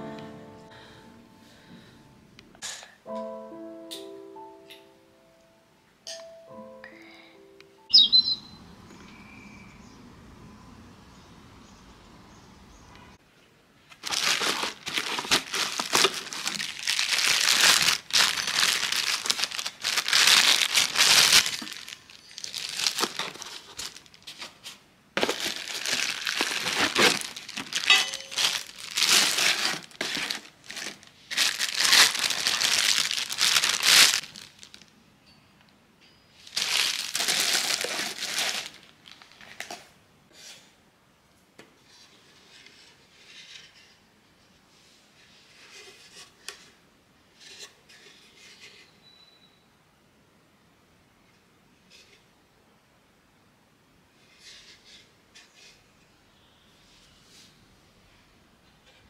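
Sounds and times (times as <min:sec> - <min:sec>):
wrapping crinkling and rustling: 0:13.9 - 0:35.0, 0:36.4 - 0:40.0.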